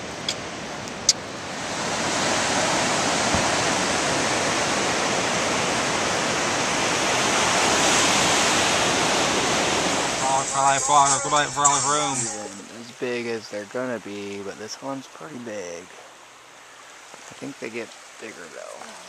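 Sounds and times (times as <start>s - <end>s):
surf breaking over rocks: 1.3s - 15.9s.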